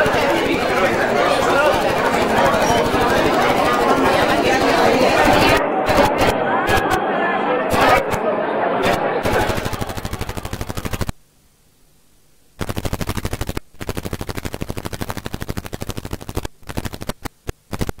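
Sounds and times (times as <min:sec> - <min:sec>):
rapid electronic clicking: 0:05.9 - 0:07.0, 0:08.8 - 0:11.2, 0:12.6 - 0:18.0.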